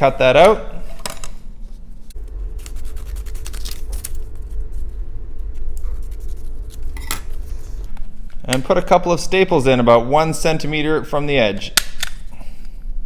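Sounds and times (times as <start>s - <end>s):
steady low hum: 0.0s - 13.0s
scissors cutting paper: 2.6s - 4.2s.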